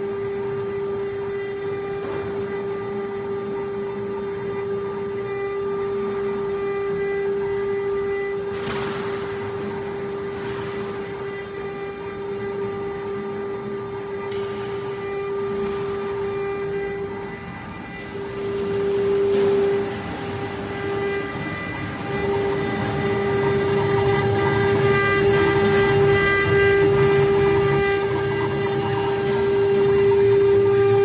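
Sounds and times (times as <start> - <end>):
router spindle whine: 0.0 - 31.0.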